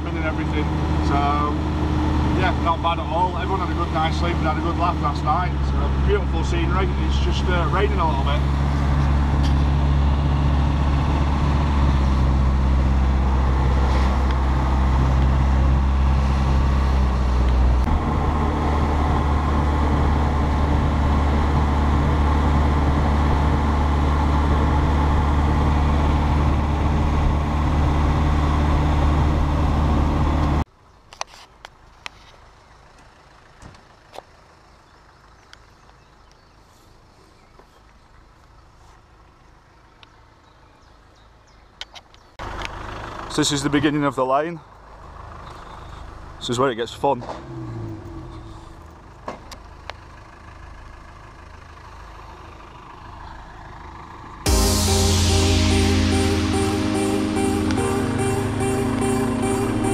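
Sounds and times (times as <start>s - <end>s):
diesel engine running: 0.0s - 30.7s, 32.5s - 36.3s, 42.4s - 46.5s, 47.2s - 59.9s.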